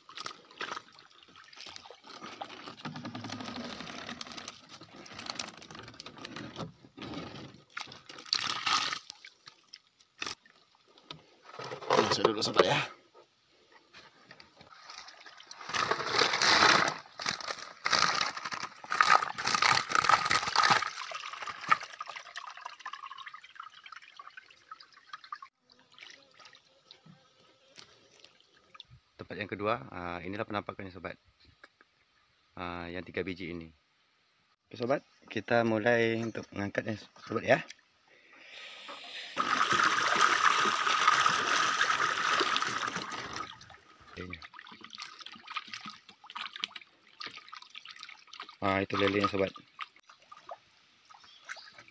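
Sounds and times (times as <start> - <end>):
fish thrashing and splashing: 7.6 - 10.4, 14.7 - 22.4, 39.4 - 43.8, 44.4 - 50.0
water trickling and dripping: 20.7 - 27.1, 28.0 - 29.0, 41.0 - 51.9.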